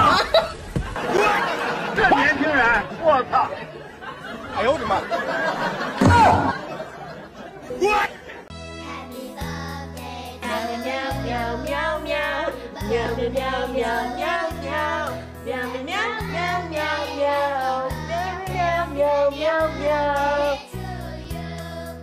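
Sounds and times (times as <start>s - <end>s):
high singing voice: 8.9s - 22.0s.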